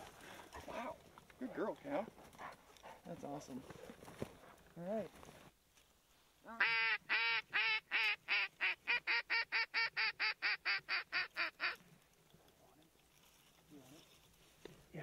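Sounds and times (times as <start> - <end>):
duck call quacks: 6.6 - 11.8.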